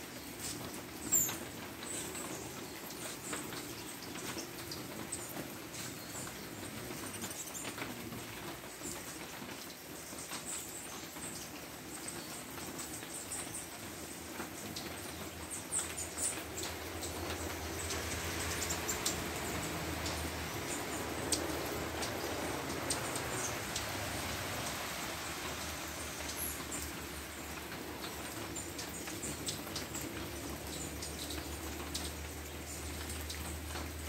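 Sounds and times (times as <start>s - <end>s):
background hiss: 0.0s - 34.0s
hummingbirds chipping and squeaking: 0.1s - 34.0s.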